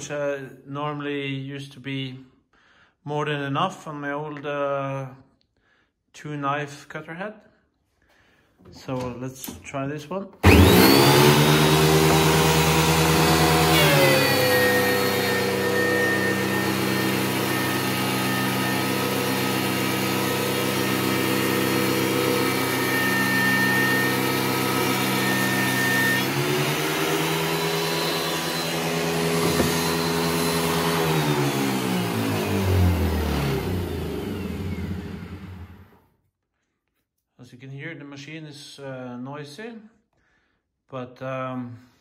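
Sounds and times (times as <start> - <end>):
planer winding down: 10.4 - 36.0
thickness planer planing wood: 10.4 - 36.0.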